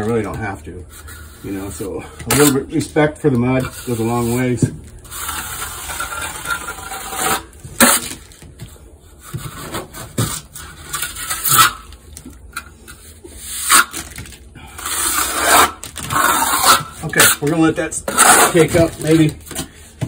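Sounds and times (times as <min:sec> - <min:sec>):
trowel scraping wet stucco: 0:00.0 - 0:08.2, 0:09.1 - 0:12.0, 0:12.8 - 0:19.8.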